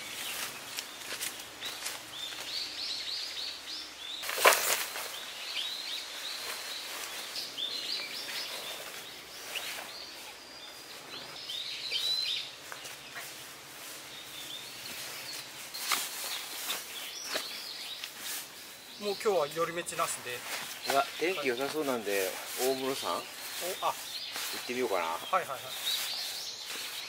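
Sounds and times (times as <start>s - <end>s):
small birds chirping: 0.0s - 27.0s.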